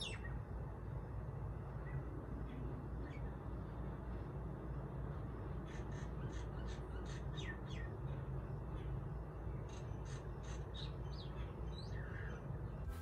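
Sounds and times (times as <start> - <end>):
myna bird calling: 5.6 - 7.9.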